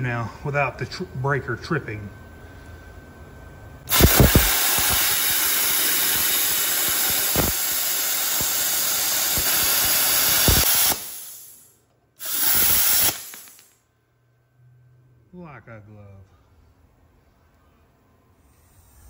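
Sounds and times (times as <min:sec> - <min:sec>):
plasma cutter arc hissing: 0:03.9 - 0:13.8.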